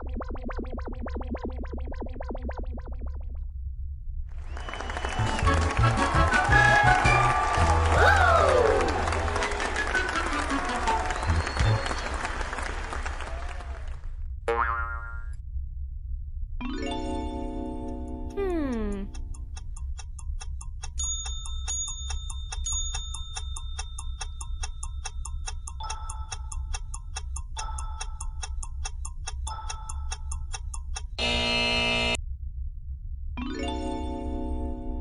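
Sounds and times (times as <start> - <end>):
clock ticking: 18.4 - 31.2
loud buzzer: 31.2 - 32.2.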